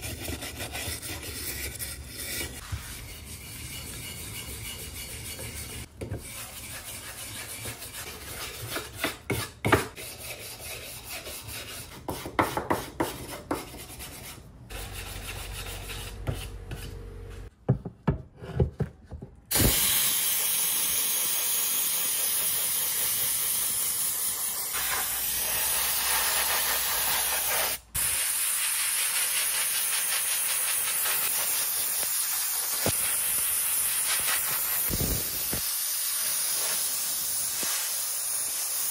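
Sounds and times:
spray gun hissing: 19.5 - 38.9.

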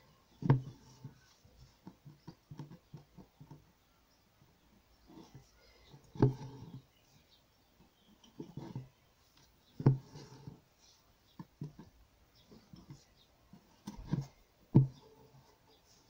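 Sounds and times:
needle tapping through fabric: 0.3 - 3.6
thread scratching through fabric: 8.2 - 14.4.

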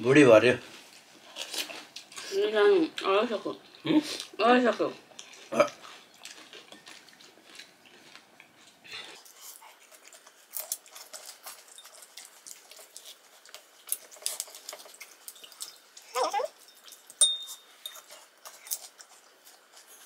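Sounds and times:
chewing: 0.9 - 20.0
spoons tapping ceramic bowls: 17.2 - 18.1.

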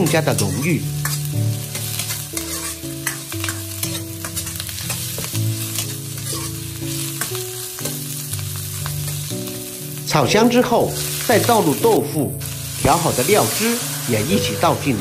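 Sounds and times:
metal ladle scraping a wok: 0.0 - 8.0
vegetables sizzling in a wok: 0.0 - 15.0.

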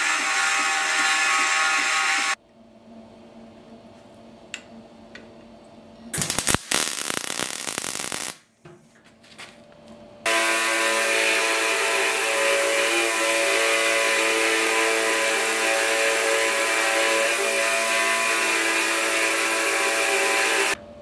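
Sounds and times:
belt grinder grinding metal: 0.0 - 2.4, 10.3 - 20.8
crackling welding arc: 0.0 - 2.4, 6.2 - 8.5, 10.3 - 20.8.

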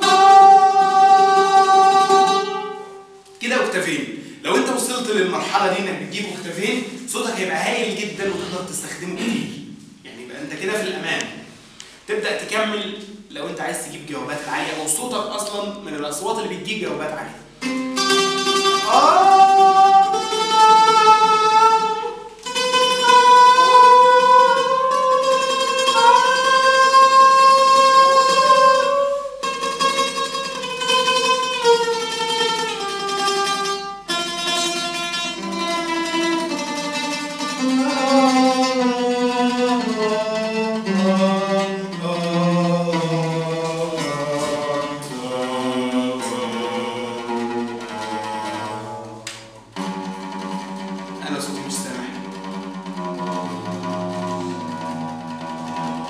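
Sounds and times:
man singing: 0.0 - 2.4, 18.8 - 22.2, 22.9 - 29.3, 37.6 - 48.8
oud strings plucked: 8.1 - 9.9, 17.5 - 56.0.

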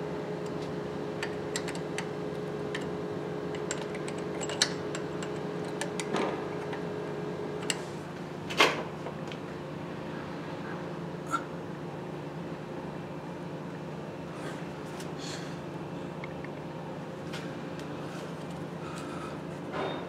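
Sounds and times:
steady background hum: 0.0 - 20.0
metallic clicks and knocks: 1.2 - 2.1, 3.5 - 6.8.

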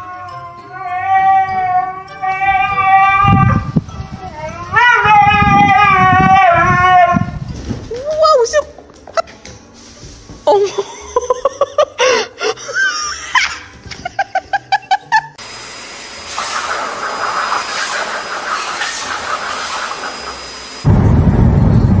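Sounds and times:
blow dryer hissing with high whine: 15.4 - 21.9
high-pitched sliding calls: 16.4 - 20.8.

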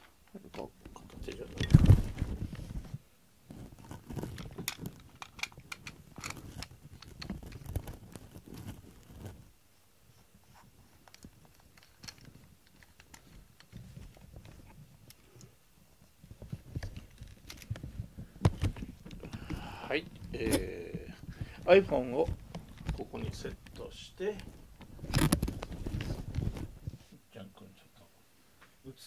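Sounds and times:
tripod handling clicks and knocks: 4.2 - 7.9, 11.1 - 14.6.

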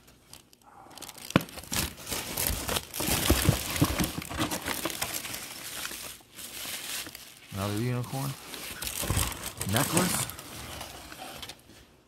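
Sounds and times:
bubble wrap and paper crinkling: 0.0 - 12.0.

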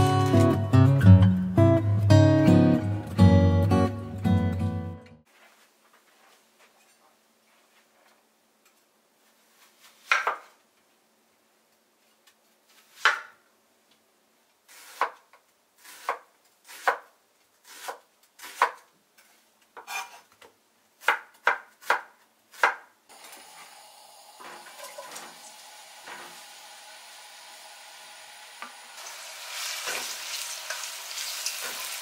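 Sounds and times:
knife slicing onion on wooden board: 9.8 - 10.5, 12.8 - 13.4, 14.7 - 20.4, 21.0 - 22.9
onion sizzling in frying pan: 23.1 - 32.0.

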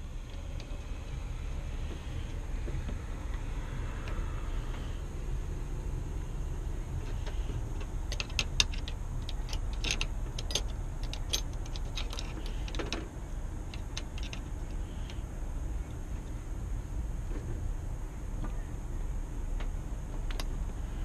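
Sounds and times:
steady low rumble: 0.0 - 21.0
metal lock parts clicking: 7.8 - 15.2.

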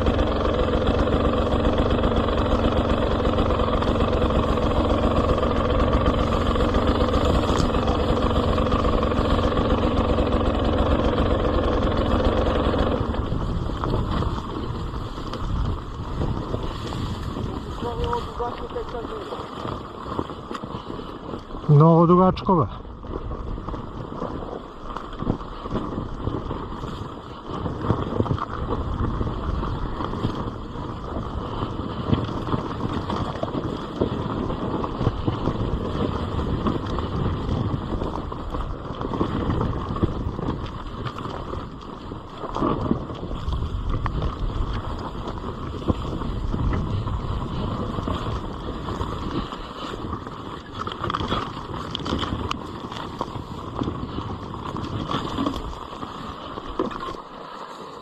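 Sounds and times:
two-stroke motorcycle engine revving: 0.0 - 20.2.

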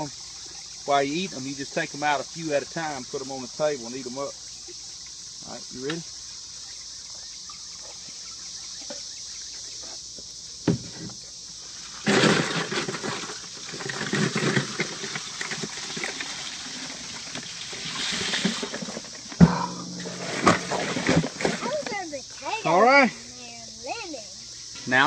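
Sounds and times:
water running out: 0.0 - 6.0, 12.6 - 22.8
shells clattering into a cooler: 12.0 - 22.0.

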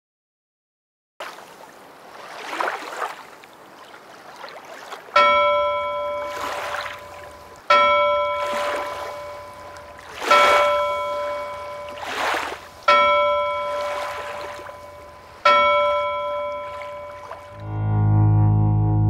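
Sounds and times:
waves washing in: 1.2 - 17.7
bell ringing: 5.2 - 18.1.

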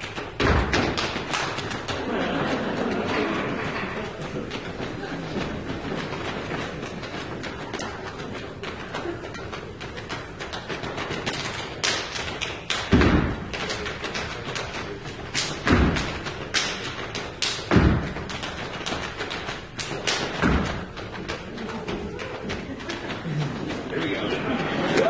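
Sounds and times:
deep drum thumps: 17.7 - 18.4.

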